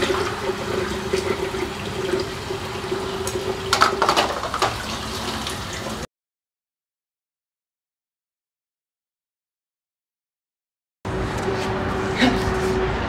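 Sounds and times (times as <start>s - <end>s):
kitchen tap running into sink: 0.0s - 6.1s.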